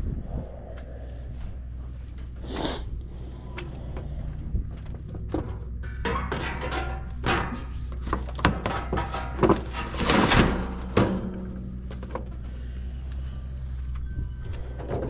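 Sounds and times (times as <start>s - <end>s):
steady low hum: 0.0s - 15.0s
metal panel knocks and rattles: 5.0s - 12.2s.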